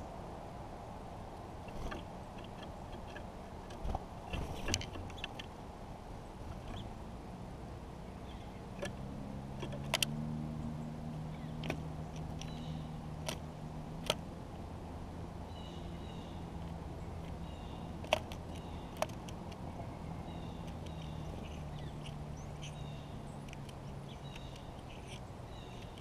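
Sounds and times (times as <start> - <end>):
low steady hum: 0.0 - 26.0
beak tapping on seed and wood: 11.5 - 14.2, 16.6 - 19.6, 20.5 - 22.8, 23.4 - 26.0.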